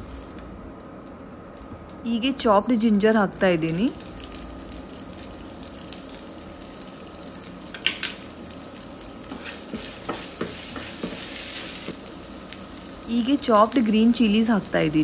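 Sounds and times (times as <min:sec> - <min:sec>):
oil sizzling in a frying pan: 0:00.0 - 0:01.0, 0:02.6 - 0:15.0
wooden spatula stirring: 0:09.3 - 0:12.0.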